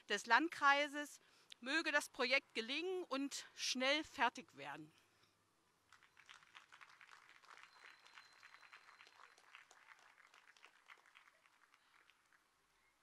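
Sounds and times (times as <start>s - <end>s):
faint applause: 5.9s - 12.9s.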